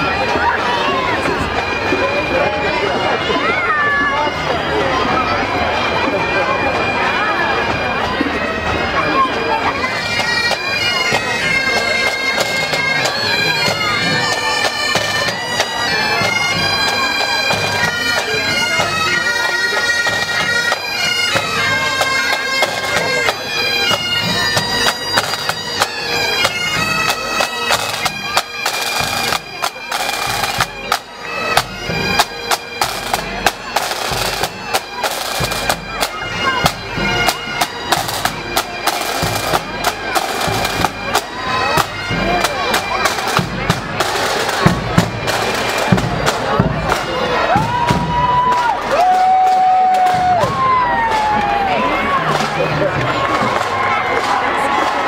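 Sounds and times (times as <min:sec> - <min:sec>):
bagpipes playing a tune: 0:00.0 - 0:48.1, 0:50.0 - 0:55.0
snare and bass drums: 0:41.8 - 0:51.4.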